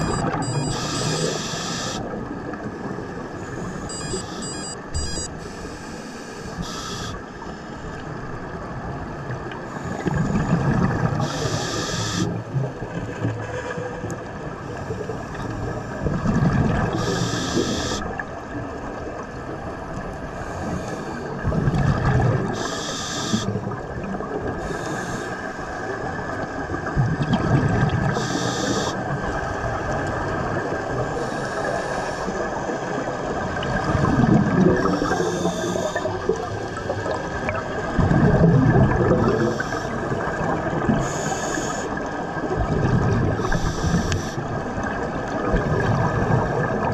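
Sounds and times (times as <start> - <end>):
regulator hissing on inhalation: 0.8 - 2.0, 6.1 - 7.2, 17.0 - 18.0, 22.6 - 23.5, 28.2 - 29.0, 41.0 - 41.9, 43.4 - 44.4
exhaled bubbles rumbling: 8.8 - 11.3, 12.3 - 20.2, 21.2 - 22.6, 25.8 - 28.3, 29.0 - 41.3, 41.9 - 46.9.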